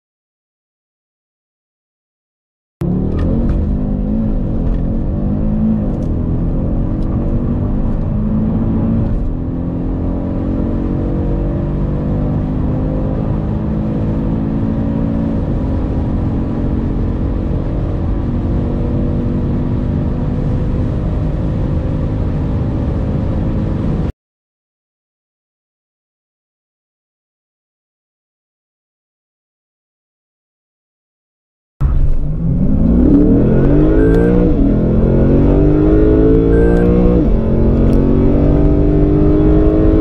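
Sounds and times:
car engine accelerating hard: 0:02.8 - 0:24.1, 0:31.8 - 0:40.0
gear upshifts: 0:31.8 - 0:40.0.

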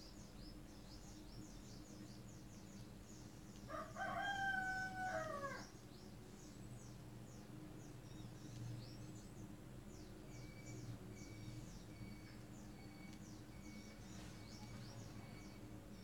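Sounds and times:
small birds chirping: 0:00.0 - 0:04.2, 0:04.8 - 0:16.0
rooster crowing: 0:03.7 - 0:05.7.

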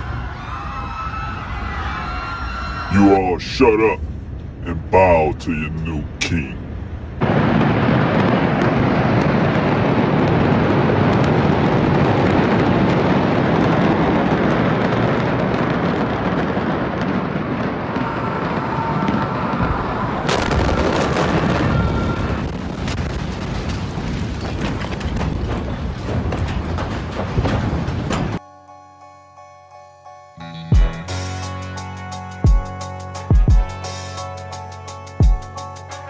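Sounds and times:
fire roaring and crackling: 0:02.9 - 0:28.4
explosions: 0:03.0 - 0:28.4.

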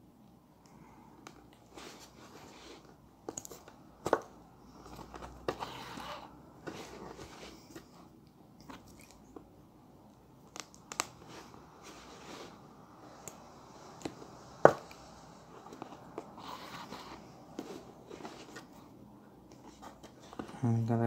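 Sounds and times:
soft rustling: 0:01.6 - 0:03.8, 0:04.7 - 0:09.5, 0:11.2 - 0:20.7.

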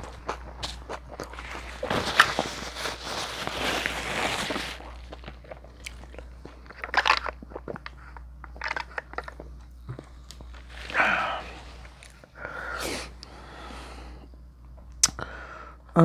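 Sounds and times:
crunchy chewing: 0:00.0 - 0:12.4
wet mouth clicks: 0:14.9 - 0:15.2.

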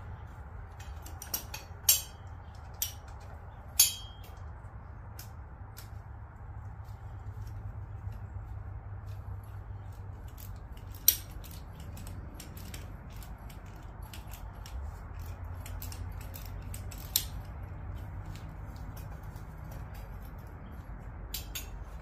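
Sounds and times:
steady low hum: 0:00.0 - 0:22.0
hand tools clicking on bolts: 0:00.6 - 0:06.0, 0:09.6 - 0:22.0
sharp metal clinks: 0:03.7 - 0:04.5.

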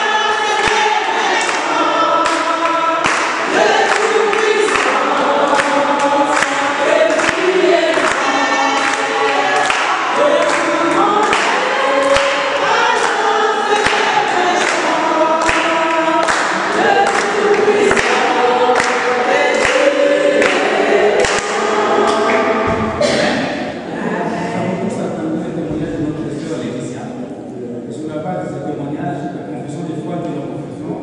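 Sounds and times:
rhythmic sharp strikes: 0:00.0 - 0:24.0
congregation singing a hymn: 0:00.0 - 0:27.2.

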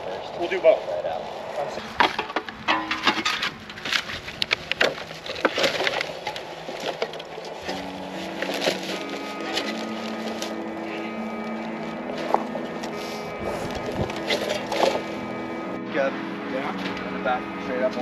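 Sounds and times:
trash knocking and clattering: 0:02.0 - 0:04.1, 0:04.7 - 0:10.6
background music: 0:08.2 - 0:18.0.

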